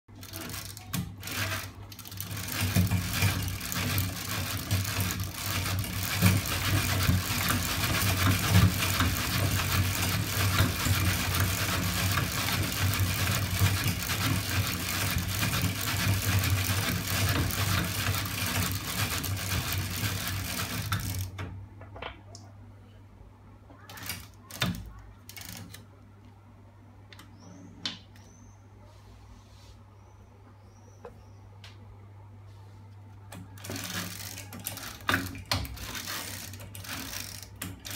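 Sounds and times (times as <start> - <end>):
clicks: 27.0 - 28.4.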